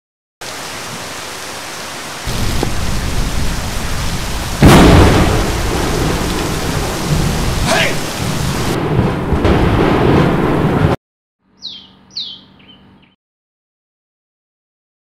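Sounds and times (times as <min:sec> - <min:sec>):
rain hissing: 0:00.4 - 0:11.0
thunder crash: 0:02.3 - 0:11.0.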